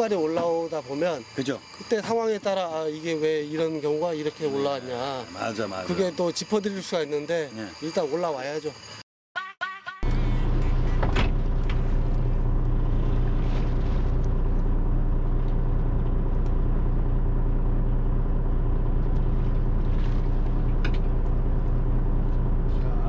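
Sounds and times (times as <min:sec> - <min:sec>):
boat diesel engine droning: 0:10.0 - 0:23.0.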